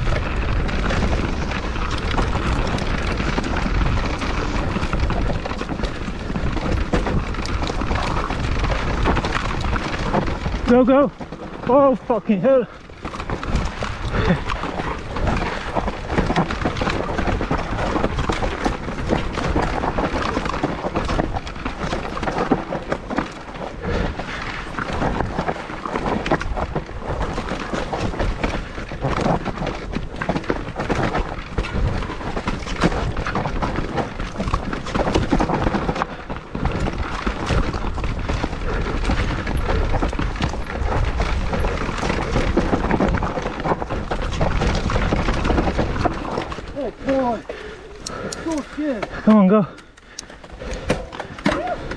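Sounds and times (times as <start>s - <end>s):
bike rattling and knocking: 0.0s - 51.9s
bike tyres on dirt and rock: 0.0s - 51.9s
wind buffeting microphone: 0.0s - 51.9s.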